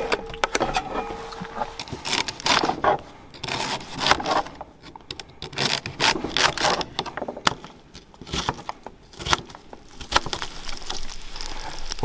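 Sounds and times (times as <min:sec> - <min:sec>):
knife crunching through vegetables: 0:08.2 - 0:12.0.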